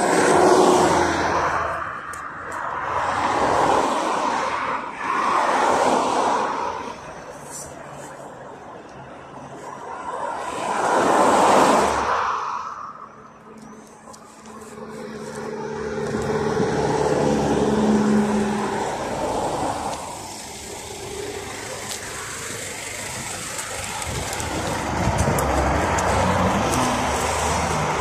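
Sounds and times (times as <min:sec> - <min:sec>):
minibus engine drone: 0:00.0 - 0:28.0.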